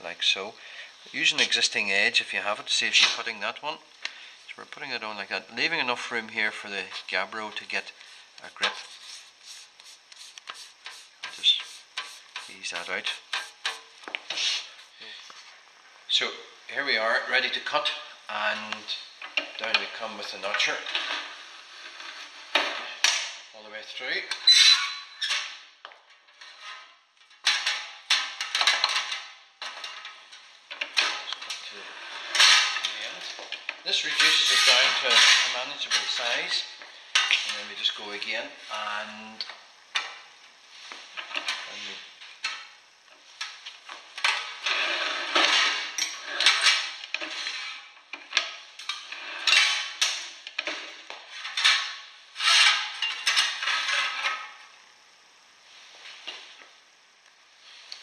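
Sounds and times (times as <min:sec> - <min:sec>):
steel sheet scraping on bench: 0:08.6 - 0:14.9, 0:20.6 - 0:22.7, 0:31.0 - 0:32.9, 0:34.0 - 0:36.6, 0:44.2 - 0:48.0, 0:48.8 - 0:54.6.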